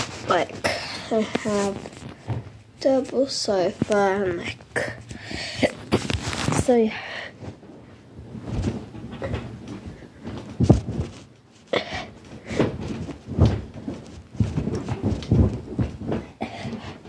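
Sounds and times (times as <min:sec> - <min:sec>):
phone microphone handling bumps: 0:08.3 - 0:11.4.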